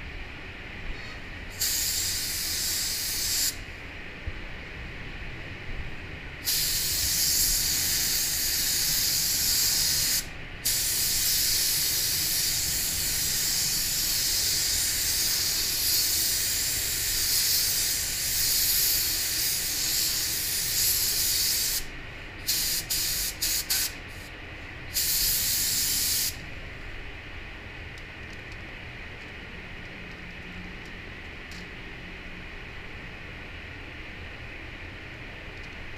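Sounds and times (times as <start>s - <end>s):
spray booth air noise: 0.9s - 3.7s, 6.4s - 24.3s, 24.9s - 26.4s
spray gun hissing: 1.5s - 3.6s, 6.4s - 24.3s, 25.0s - 26.4s.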